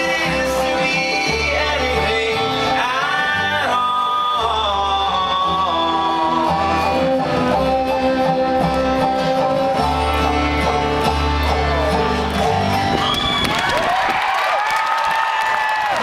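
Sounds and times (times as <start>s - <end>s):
plucked acoustic strings: 0.0s - 13.4s
upright bass notes: 0.0s - 14.1s.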